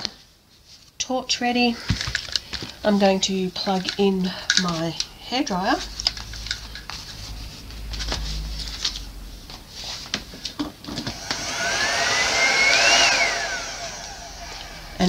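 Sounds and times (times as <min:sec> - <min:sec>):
hairdryer motor whining: 0:11.0 - 0:15.0.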